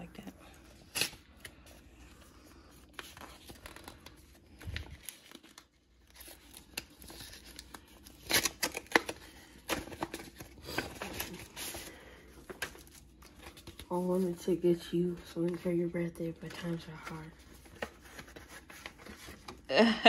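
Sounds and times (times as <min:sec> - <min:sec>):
envelope paper ripping: 0:02.8 - 0:11.8.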